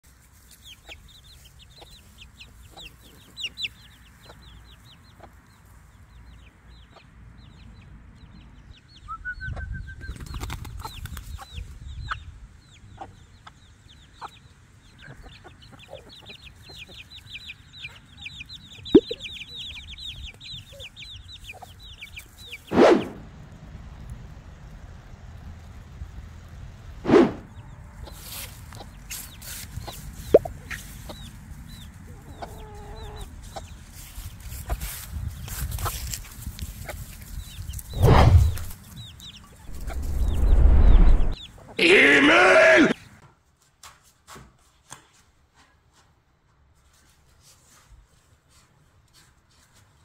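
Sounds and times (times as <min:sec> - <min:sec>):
chicks peeping: 0:00.3 - 0:22.8, 0:27.5 - 0:41.7
hens clucking: 0:32.0 - 0:34.0
low rumble: 0:38.0 - 0:38.8, 0:39.7 - 0:41.4
loud short chicken call: 0:41.8 - 0:43.0.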